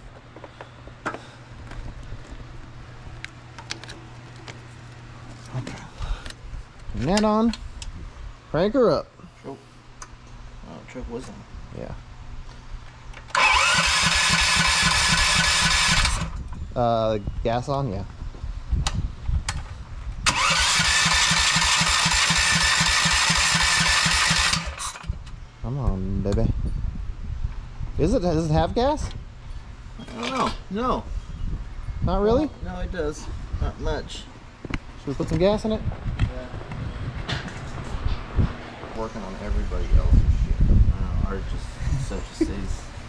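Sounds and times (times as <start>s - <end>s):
steady low hum: 0.0s - 43.0s
small engine cranking: 13.2s - 16.4s, 20.2s - 25.1s.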